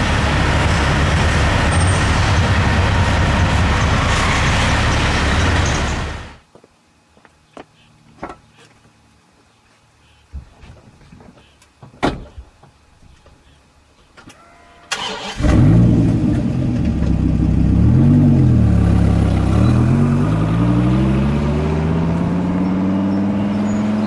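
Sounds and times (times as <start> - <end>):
car engine starting and revving: 14.9 - 24.0.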